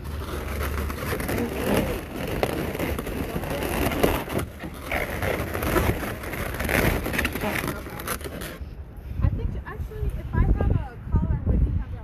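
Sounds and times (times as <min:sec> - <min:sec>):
balloons rubbing and squeaking: 0:00.0 - 0:08.8.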